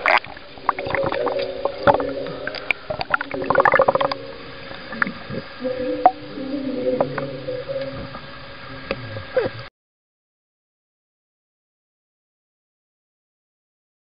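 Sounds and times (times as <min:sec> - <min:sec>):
underwater clicks: 0:00.0 - 0:05.4
steady low hum: 0:00.0 - 0:09.7
underwater gurgling: 0:00.0 - 0:09.7.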